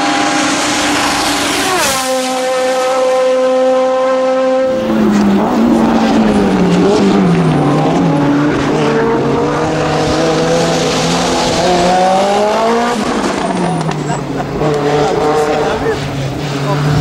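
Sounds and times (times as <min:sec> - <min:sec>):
racing car engine running hard: 0:00.0 - 0:17.0.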